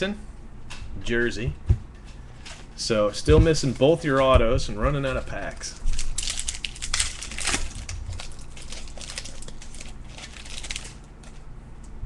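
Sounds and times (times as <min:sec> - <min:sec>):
card pack wrapper crinkling: 0:05.4 - 0:11.4.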